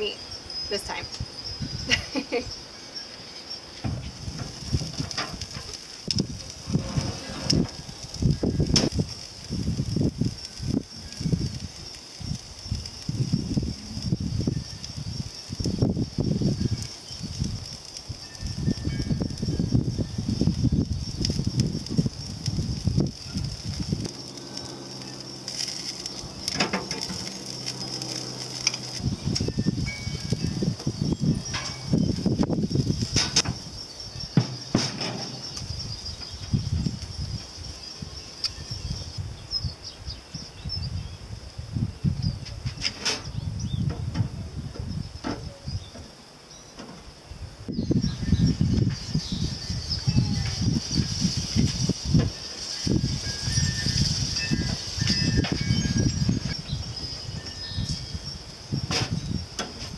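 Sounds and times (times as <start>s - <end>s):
wind rumble on microphone: 0.0s - 2.7s, 3.6s - 59.9s
food sizzling on a grill: 0.0s - 59.9s
insects trilling: 0.0s - 59.9s
low rumbling noise: 3.8s - 16.8s, 18.7s - 34.0s
utensil clicking on grill grate: 4.2s - 33.6s.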